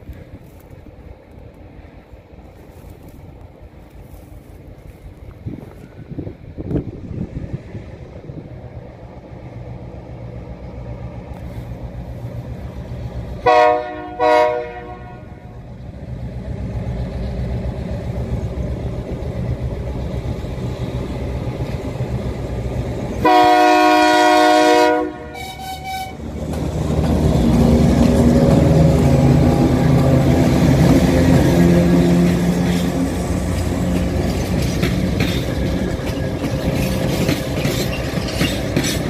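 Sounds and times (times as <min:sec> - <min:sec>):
low rumble of train: 0:00.0 - 0:39.0
train horn blasts: 0:13.4 - 0:15.7, 0:23.2 - 0:26.3.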